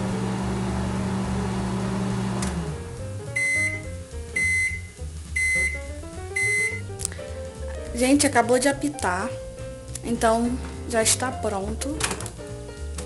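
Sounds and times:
microwave oven humming: 0.0s - 6.8s
microwave high beeps: 3.4s - 6.9s.

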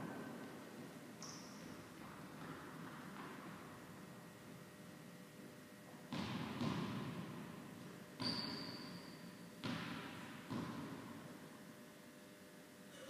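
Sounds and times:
tennis ball bouncing echoing: 0.0s - 4.0s, 6.0s - 8.9s, 9.6s - 11.5s.

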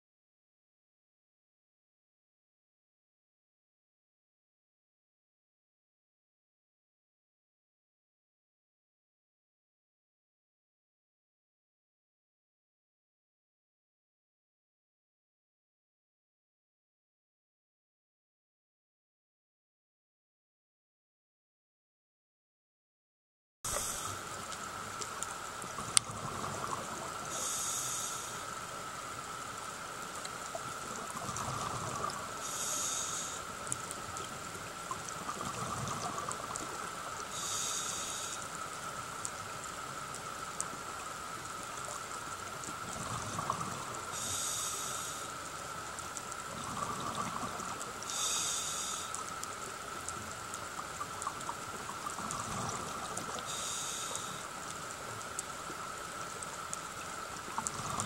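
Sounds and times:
bubbling exhale: 23.7s - 24.3s, 31.1s - 33.4s, 46.5s - 49.1s, 57.6s - 58.0s
regulator breath hiss: 23.7s - 24.3s, 27.3s - 28.5s, 32.4s - 33.6s, 37.3s - 38.6s, 44.1s - 45.4s, 48.0s - 49.3s, 53.4s - 54.5s.

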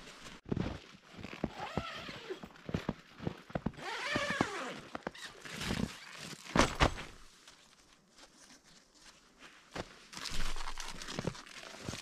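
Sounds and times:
tent fabric rustling: 0.0s - 12.0s
tent zipper being pulled: 1.2s - 2.5s, 3.7s - 6.8s.

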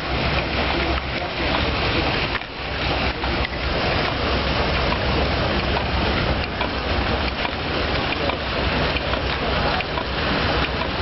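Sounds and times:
steam engine running: 0.0s - 11.0s.

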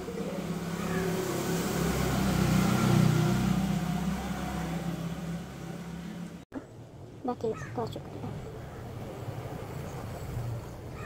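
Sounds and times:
vehicle engine passing by: 0.0s - 6.4s.

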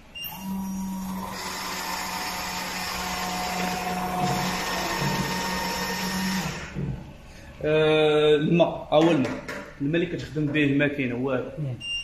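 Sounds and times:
coffee machine whirring hum: 0.0s - 7.2s.

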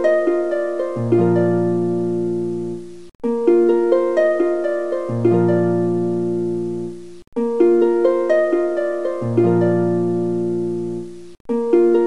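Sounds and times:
plucked harp-like strings: 0.0s - 12.0s.

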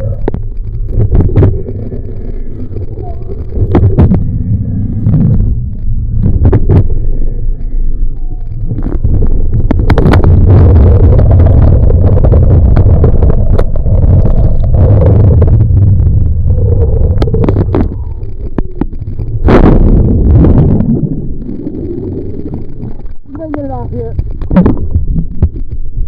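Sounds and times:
water rushing against camera: 0.0s - 26.0s
water splash over camera: 8.4s - 26.0s.

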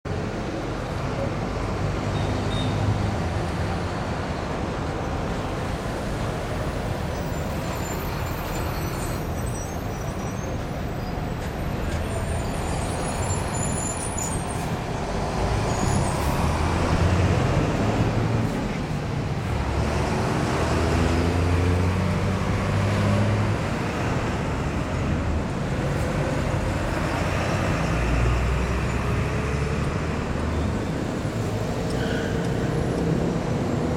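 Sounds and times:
cars and buses passing: 0.1s - 33.9s
high squeals: 7.1s - 11.4s.

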